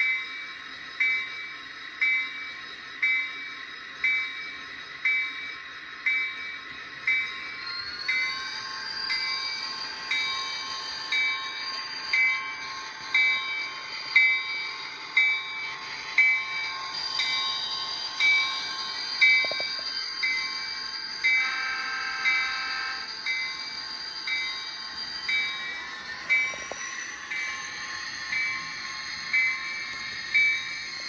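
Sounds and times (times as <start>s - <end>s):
model locomotive bell ringing: 0.0s - 31.0s
train horn: 21.4s - 23.0s.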